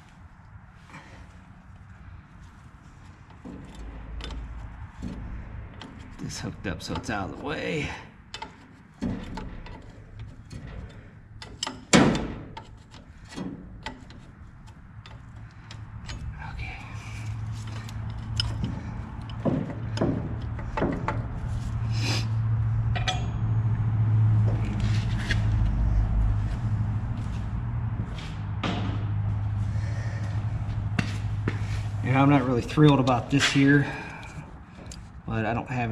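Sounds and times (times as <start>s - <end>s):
wrench clinking on metal: 7.8s - 20.1s, 22.9s - 23.5s.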